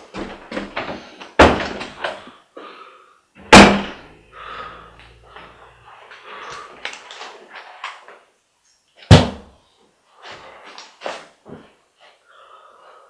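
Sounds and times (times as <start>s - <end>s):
faint scuffling: 10.2s - 12.2s.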